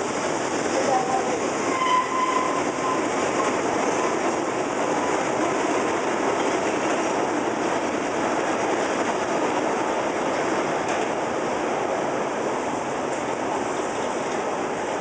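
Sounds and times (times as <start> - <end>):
train wheels rumbling and rattling: 0.0 - 15.0
high wheel squeal: 1.6 - 3.1.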